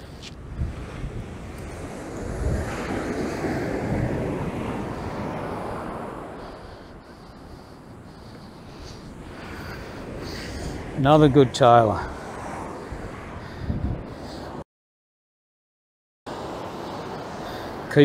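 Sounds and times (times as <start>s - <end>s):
wind on microphone: 0.0s - 14.6s
surf washing onto beach: 0.6s - 6.4s.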